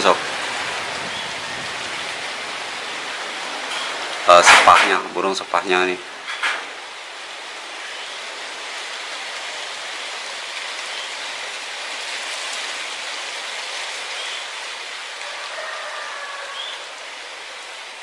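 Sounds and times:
rushing outdoor background noise: 0.0s - 18.0s
faint high bird chirps: 14.1s - 14.5s, 16.4s - 16.9s.

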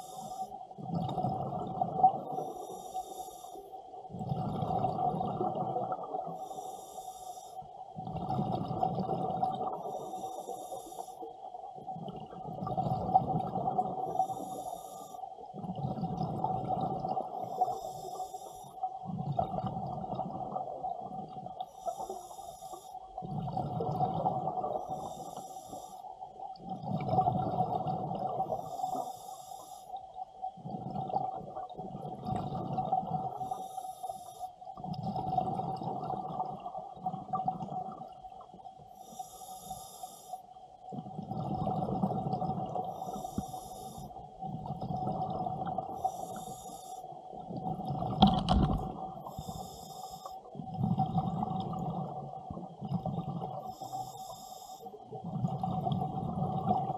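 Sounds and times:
regulator hissing on inhale: 0.0s - 0.6s, 2.3s - 3.8s, 6.3s - 7.7s, 9.8s - 11.4s, 14.0s - 15.6s, 17.3s - 18.9s, 21.6s - 23.2s, 24.8s - 26.3s, 28.4s - 30.1s, 33.3s - 34.7s, 38.8s - 40.6s, 42.8s - 44.4s, 45.9s - 47.4s, 49.2s - 50.7s, 53.5s - 55.2s
exhaled bubbles rumbling: 0.8s - 2.5s, 4.1s - 6.3s, 8.0s - 10.0s, 11.8s - 14.4s, 15.6s - 17.8s, 19.0s - 21.5s, 23.2s - 25.0s, 26.6s - 28.6s, 30.6s - 33.5s, 34.8s - 38.2s, 40.9s - 43.1s, 44.4s - 46.1s, 47.4s - 49.6s, 50.6s - 53.6s, 55.2s - 56.9s.

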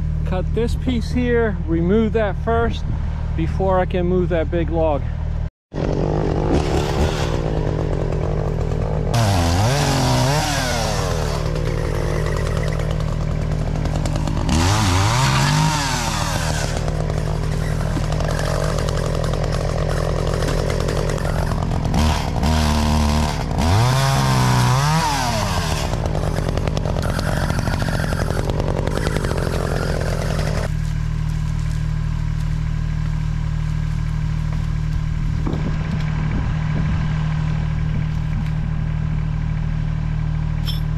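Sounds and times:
chainsaw engine idling: 0.0s - 40.9s
chainsaw cutting wood: 5.8s - 36.2s.

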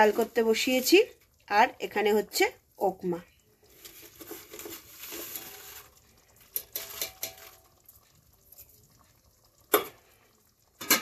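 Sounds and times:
food sizzling in a pan: 0.0s - 11.0s.

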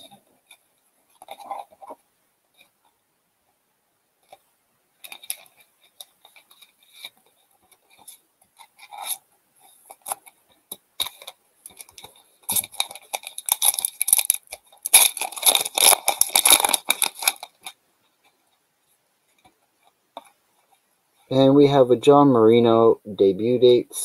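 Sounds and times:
foil wrapper crinkling: 11.0s - 17.8s.

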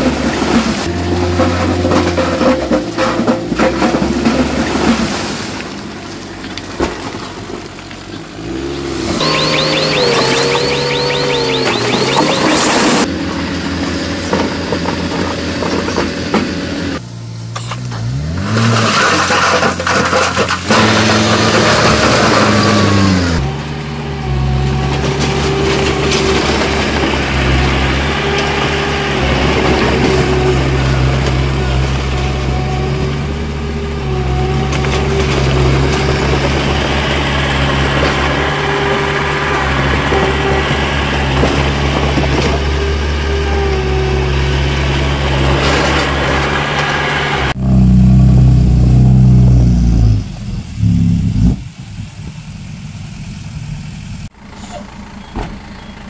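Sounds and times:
diesel engine running: 0.0s - 56.0s
deep loud engine note: 20.7s - 52.8s.

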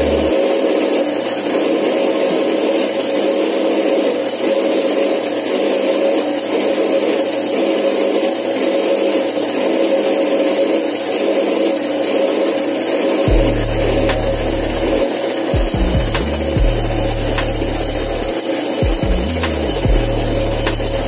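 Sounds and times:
power tool whining: 7.2s - 21.0s.

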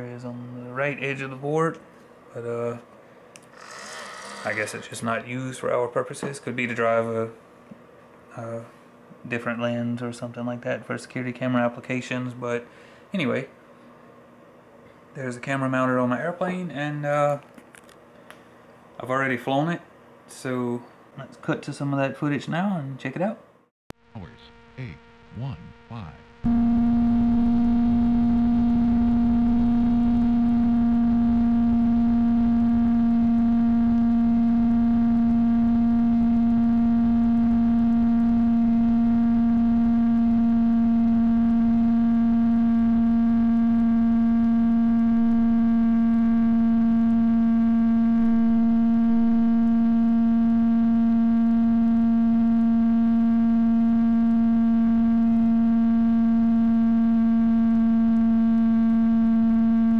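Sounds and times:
steady electrical buzz: 0.0s - 7.6s, 24.0s - 59.9s.

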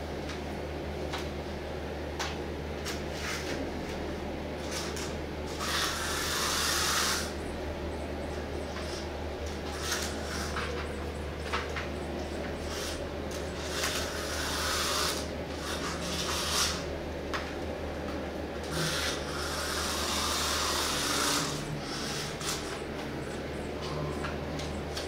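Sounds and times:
steady low hum: 0.0s - 25.0s
cat rubbing and scratching toy: 4.6s - 7.4s, 8.8s - 10.9s, 12.6s - 16.9s, 18.6s - 22.8s.

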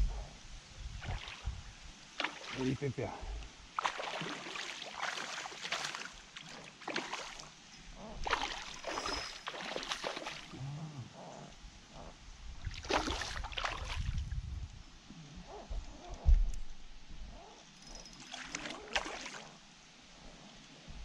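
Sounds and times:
fish splashing at water surface: 3.8s - 6.2s, 8.2s - 10.5s.

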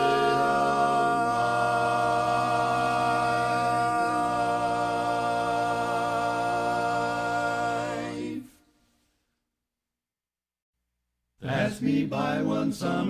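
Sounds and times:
quartet singing a cappella: 0.0s - 8.6s, 11.4s - 13.0s.

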